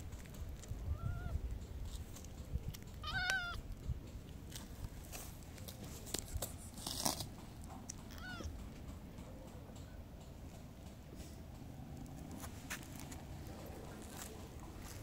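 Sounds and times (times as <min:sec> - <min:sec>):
cat meowing: 0:03.0 - 0:03.6, 0:08.1 - 0:08.5.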